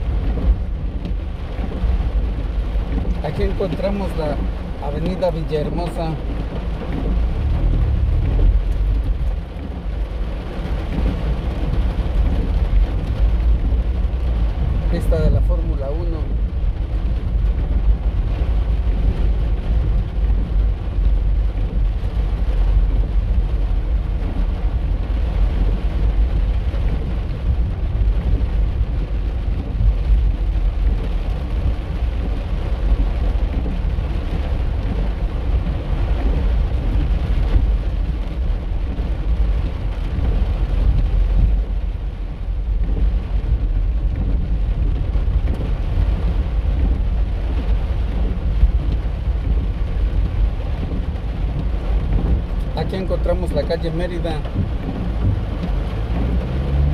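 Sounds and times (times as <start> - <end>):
car engine and tyres rumbling: 0.0 - 56.9
rain on a car: 0.0 - 56.9.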